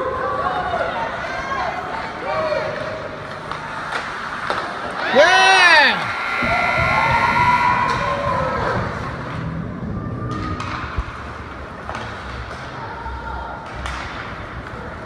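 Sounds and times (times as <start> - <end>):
murmur of spectators: 0.0 - 15.0
hockey sticks and puck knocking: 3.3 - 5.0, 10.3 - 12.8, 13.6 - 14.9
crowd cheering: 4.9 - 9.4.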